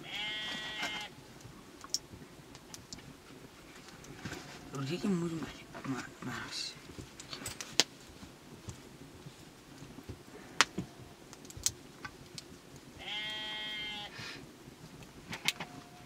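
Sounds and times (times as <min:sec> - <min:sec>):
bleat: 0:00.0 - 0:01.1, 0:13.0 - 0:14.1.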